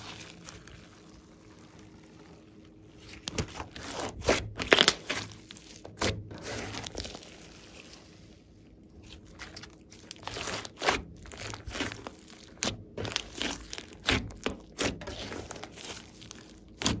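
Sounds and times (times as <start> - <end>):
slime squishing: 0.0 - 17.0
slime pops and crackles: 4.2 - 5.2.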